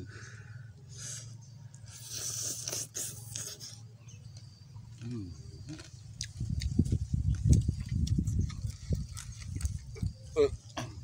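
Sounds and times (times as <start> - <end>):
man chewing and smacking: 5.7 - 10.7
man humming: 10.3 - 10.9.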